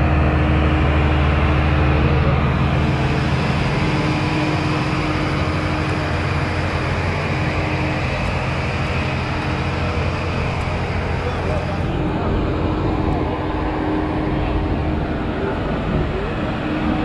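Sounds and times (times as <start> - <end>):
ground power unit engine hum: 0.0 - 17.0.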